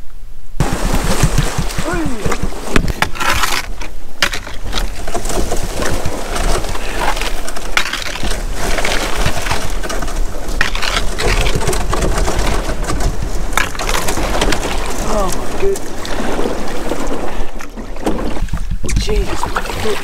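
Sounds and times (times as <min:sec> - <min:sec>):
reeds scraping along canoe hull: 0:00.6 - 0:20.0.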